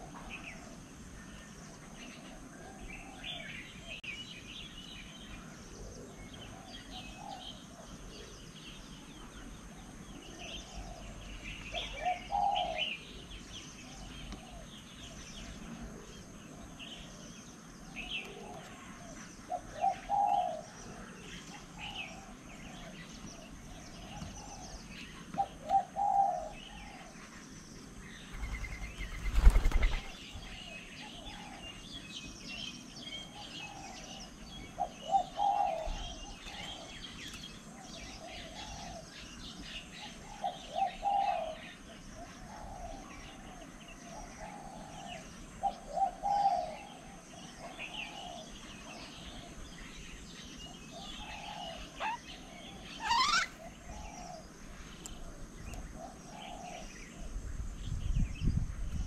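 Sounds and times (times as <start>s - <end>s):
small birds chirping: 0.0s - 59.0s
dove cooing: 5.4s - 8.5s, 9.9s - 14.8s, 15.4s - 27.2s, 28.3s - 31.8s, 33.2s - 37.1s, 37.7s - 39.2s, 40.0s - 49.7s, 50.7s - 54.6s, 55.2s - 57.4s.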